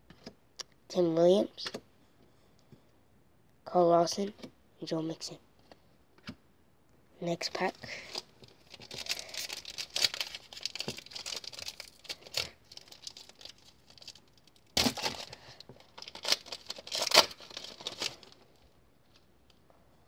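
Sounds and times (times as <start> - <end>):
foil wrapper crinkling: 7.9 - 18.4
foil wrapper ripping: 8.6 - 18.4.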